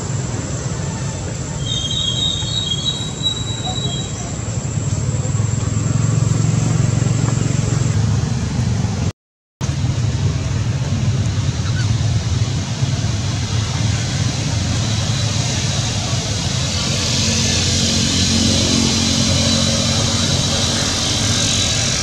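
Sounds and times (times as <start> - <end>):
low rumbling background noise: 0.0 - 22.0.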